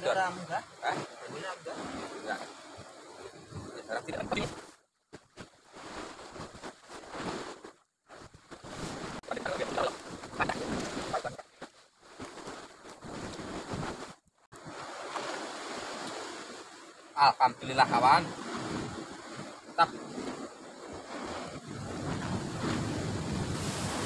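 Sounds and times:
sea surf: 0.0s - 4.8s, 5.7s - 24.0s
wind noise on microphone: 1.7s - 4.6s, 8.2s - 11.4s, 12.4s - 14.8s, 17.9s - 24.0s.

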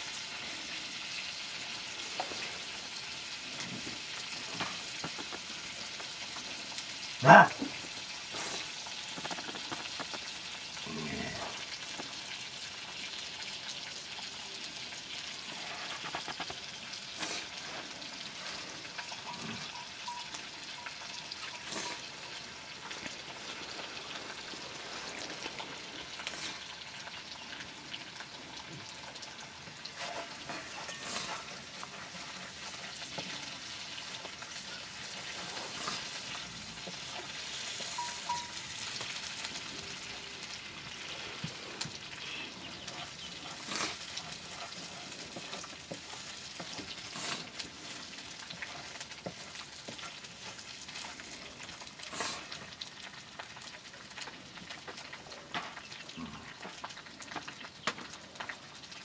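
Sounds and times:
food sizzling in metal pan: 0.0s - 59.0s
small crackles and knocks: 1.6s - 10.8s, 11.4s - 59.0s
wooden spatula stirring pan: 3.6s - 6.9s, 15.2s - 26.8s, 28.8s - 40.5s, 41.2s - 55.9s.

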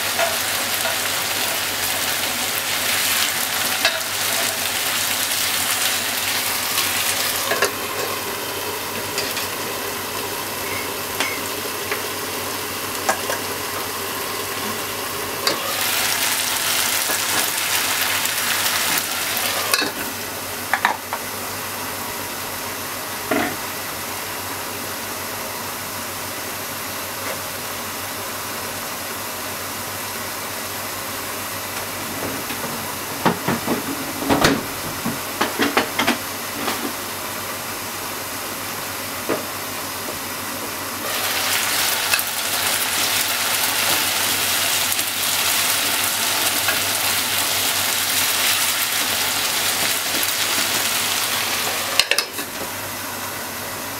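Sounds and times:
food sizzling in frying pan: 0.0s - 21.2s, 41.0s - 53.2s.

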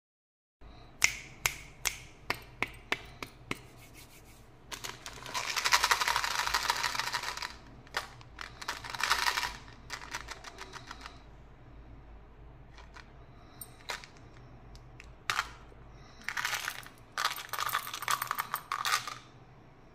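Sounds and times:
mints rattling in plastic box: 4.7s - 11.2s, 12.8s - 14.2s, 15.2s - 19.3s.

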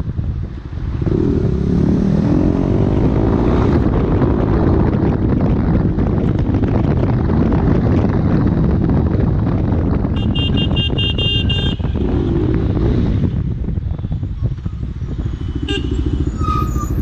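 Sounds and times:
motorcycle engine running: 0.0s - 16.4s
wind rushing over camera: 0.0s - 17.0s
vehicle horn beeping: 10.2s - 12.2s, 15.4s - 16.5s.

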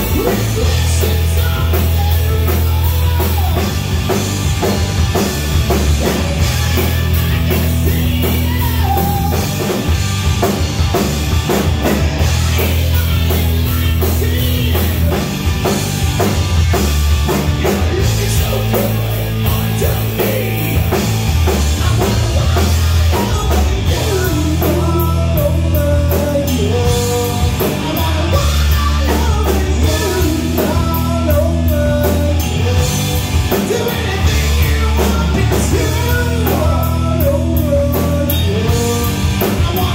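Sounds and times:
drum kit: 0.0s - 39.9s
electric bass: 0.0s - 39.9s
electric guitar: 0.0s - 39.9s.

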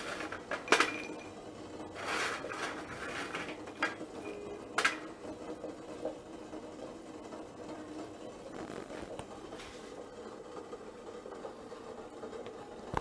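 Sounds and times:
nuts scraping in salt: 1.9s - 3.6s.

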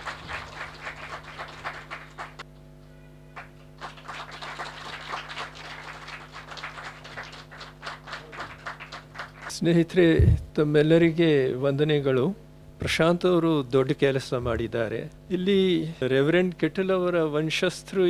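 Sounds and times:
audience applauding: 0.0s - 2.4s, 3.4s - 9.5s.

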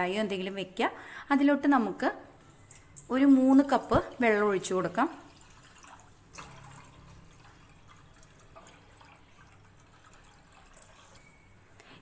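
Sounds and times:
water pouring into metal pan: 2.6s - 11.5s.

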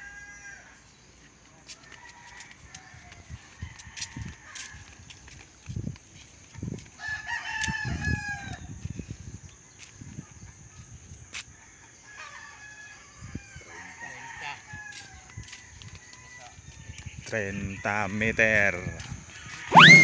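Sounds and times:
footsteps on concrete: 1.6s - 7.8s, 14.9s - 17.3s.

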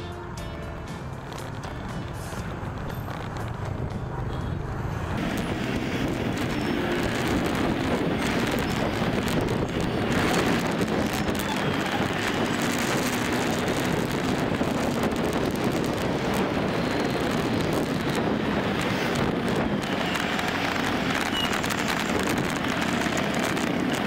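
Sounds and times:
motorbike and scooter engines: 0.0s - 24.0s
wind on microphone: 1.4s - 24.0s.

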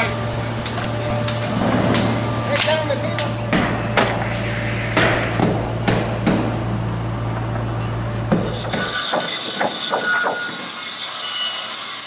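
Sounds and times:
low machine hum: 0.0s - 9.1s
hammer striking wood: 3.5s - 4.2s, 5.0s - 6.6s, 8.3s - 10.6s.

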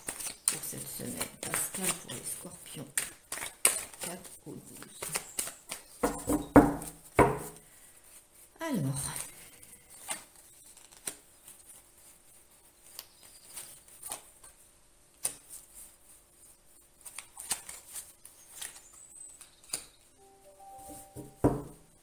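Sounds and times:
cards clicking and rustling: 0.0s - 7.0s, 10.0s - 11.6s, 17.0s - 20.1s.

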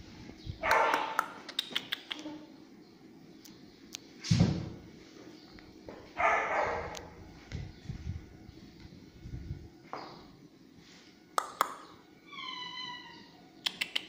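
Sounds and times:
puppy barking: 0.6s - 1.4s, 6.2s - 7.1s.

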